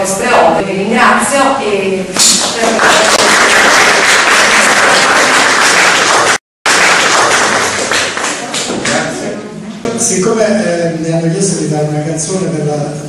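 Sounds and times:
audience applauding: 2.5 - 9.2.

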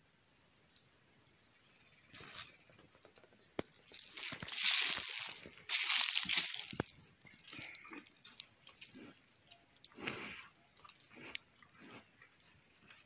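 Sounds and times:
cattle chewing: 3.8 - 13.0.

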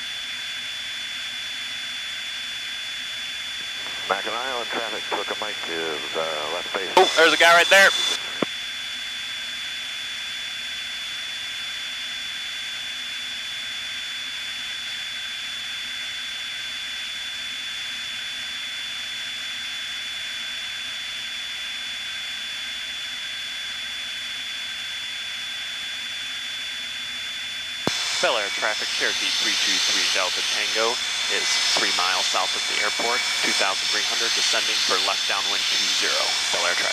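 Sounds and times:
aircraft cabin hiss and whine: 3.6 - 8.5, 27.9 - 36.9.

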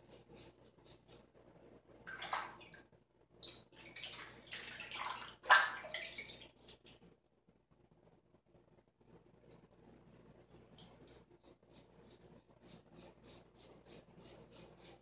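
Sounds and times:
water splashing in a sink: 2.0 - 7.0
razor strokes on stubble: 11.4 - 15.0.

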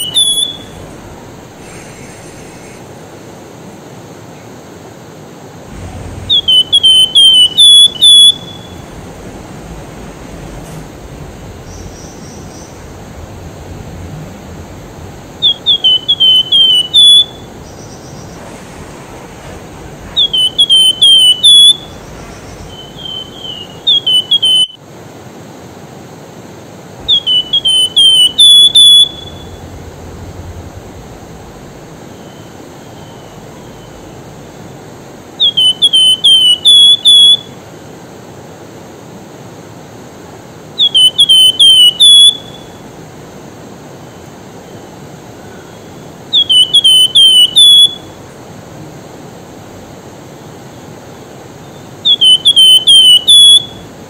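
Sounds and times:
songbird whistling phrases: 0.0 - 2.8, 5.9 - 18.4, 19.5 - 24.8, 27.0 - 34.5, 35.4 - 37.5, 40.8 - 42.8, 45.5 - 48.2, 52.0 - 53.9.

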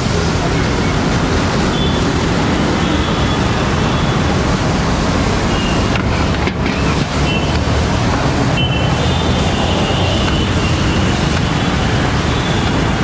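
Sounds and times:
even hiss: 0.0 - 13.0.

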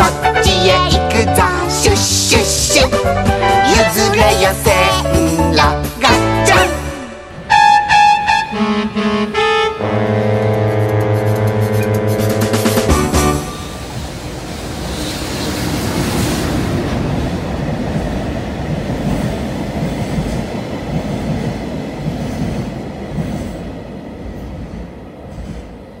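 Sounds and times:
freight train rumbling: 0.0 - 26.0.

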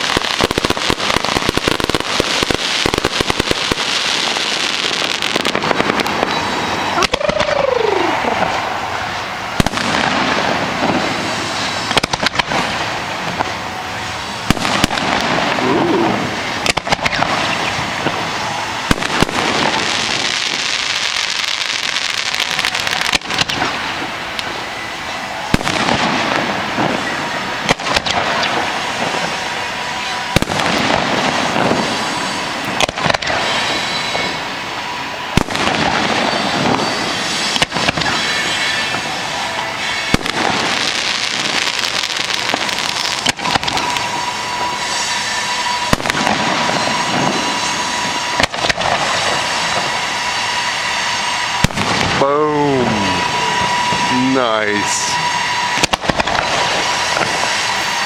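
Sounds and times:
rising rockets hissing: 0.0 - 58.0
firework shell bursts booming: 9.5 - 13.6, 14.4 - 24.6, 25.5 - 29.4, 30.3 - 34.4, 39.8 - 49.9, 51.5 - 52.2.

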